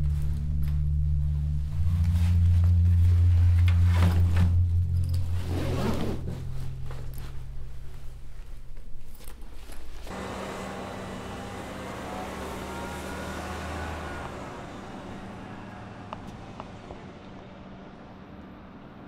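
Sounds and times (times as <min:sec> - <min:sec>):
bus engine rumbling: 0:00.0 - 0:19.0
low steady hum: 0:00.0 - 0:19.0
street traffic noise: 0:09.2 - 0:19.0.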